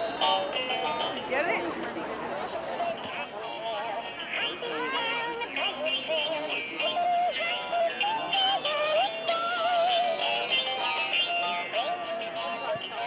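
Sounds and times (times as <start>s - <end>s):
high singing voice with wavering notes: 3.6s - 13.0s.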